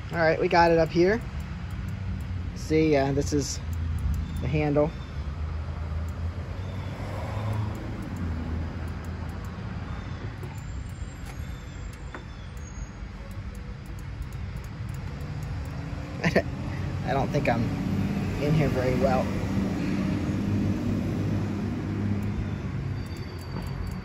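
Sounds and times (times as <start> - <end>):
traffic rumble: 0.0 - 24.0
faint clicks: 10.4 - 15.8.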